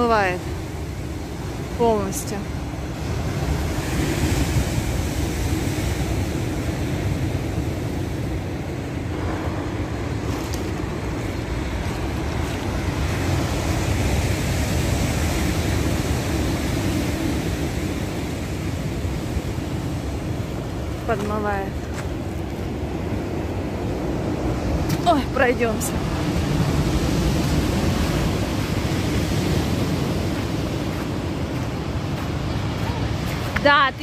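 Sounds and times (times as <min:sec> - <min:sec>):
heavy waves breaking: 0:00.0 - 0:34.0
wind rumbling on microphone: 0:00.0 - 0:34.0.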